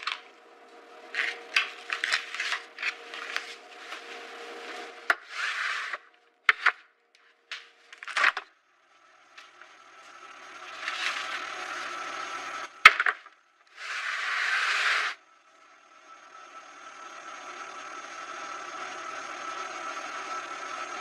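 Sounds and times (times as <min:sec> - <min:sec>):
plastic rustling and sliding: 0:01.1 - 0:06.7, 0:10.7 - 0:11.8, 0:13.7 - 0:15.2.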